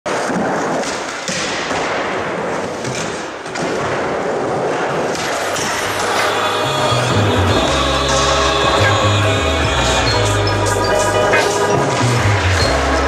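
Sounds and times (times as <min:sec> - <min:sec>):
skateboard wheels rolling on concrete: 0:00.1 - 0:01.3, 0:02.1 - 0:06.4.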